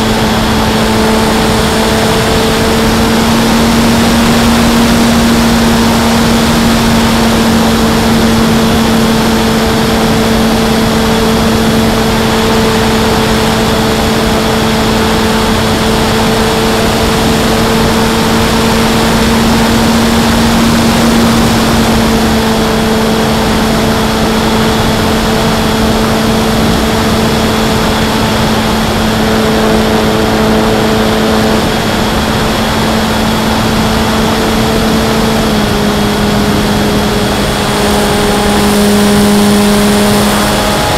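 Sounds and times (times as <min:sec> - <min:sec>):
electric motor and propeller: 0:00.0 - 0:40.9
wind rush over microphone: 0:00.0 - 0:40.9.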